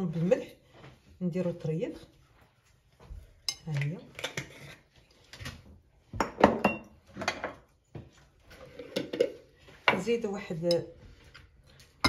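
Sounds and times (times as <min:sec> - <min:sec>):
dishes and utensils clinking: 0:06.2 - 0:07.6, 0:08.6 - 0:12.0.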